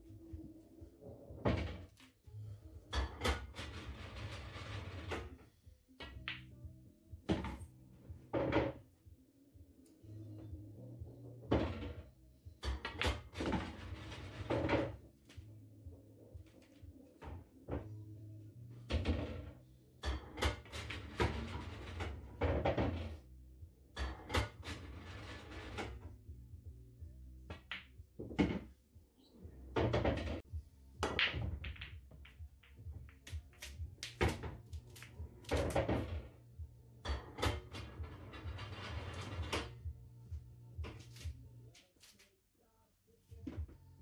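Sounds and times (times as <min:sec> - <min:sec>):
pool balls clacking: 0:31.0 - 0:36.2.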